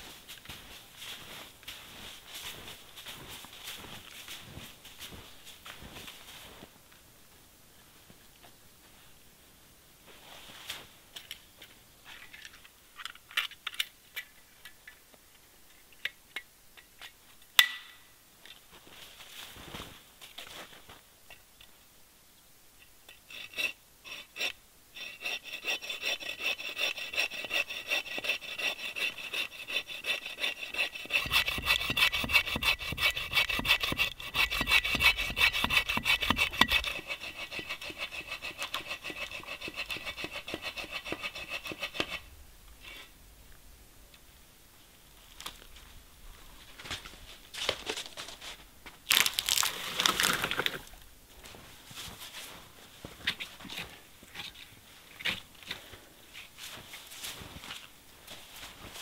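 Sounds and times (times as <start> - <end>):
bow saw cutting wood: 23.3 - 42.3
tree trunk cracking: 49.0 - 50.8.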